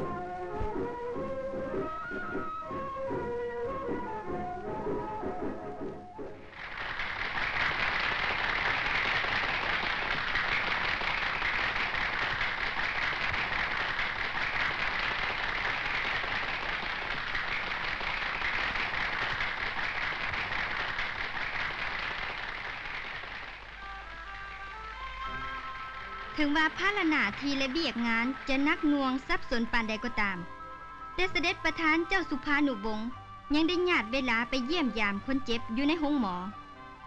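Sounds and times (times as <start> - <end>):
crowd applauding: 6.4 - 29.3.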